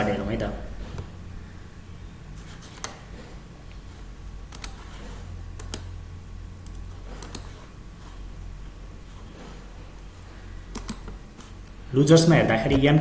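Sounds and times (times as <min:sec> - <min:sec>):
low steady hum: 0:00.0 - 0:13.0
computer mouse clicks: 0:02.7 - 0:03.1, 0:04.5 - 0:05.9, 0:06.6 - 0:07.7, 0:10.7 - 0:11.8
keyboard clicks: 0:04.5 - 0:04.9, 0:05.6 - 0:05.9, 0:06.6 - 0:07.6, 0:10.7 - 0:11.2.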